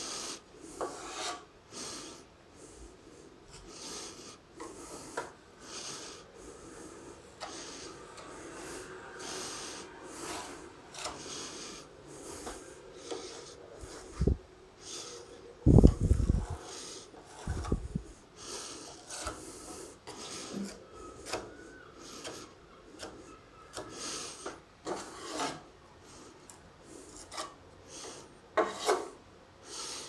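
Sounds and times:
putty knife scraping filler: 0.7s - 1.5s, 7.4s - 14.2s, 15.8s - 17.8s, 18.4s - 25.7s, 27.0s - 29.2s.

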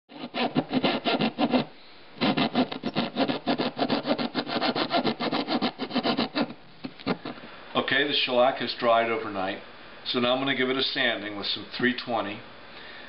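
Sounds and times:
sandpaper rubbing on wood: 0.1s - 6.5s.

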